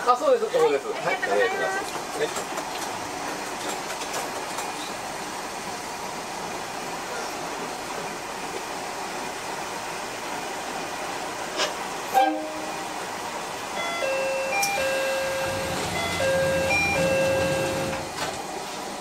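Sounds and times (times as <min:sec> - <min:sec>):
railcar engine rumble: 0:00.0 - 0:19.0
train horn toot: 0:12.1 - 0:12.9.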